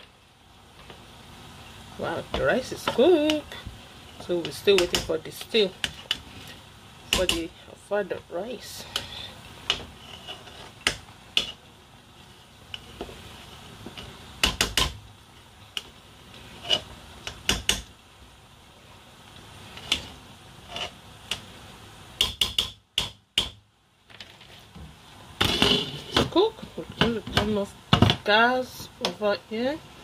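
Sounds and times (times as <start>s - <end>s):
spoon scraping through rice: 9.8s - 10.8s, 16.5s - 16.9s, 20.6s - 21.0s.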